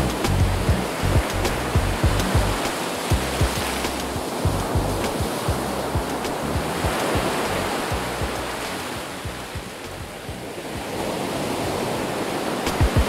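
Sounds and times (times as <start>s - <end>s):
low thuds: 0.0s - 8.6s, 9.2s - 10.5s
waves breaking on sand: 0.1s - 13.0s.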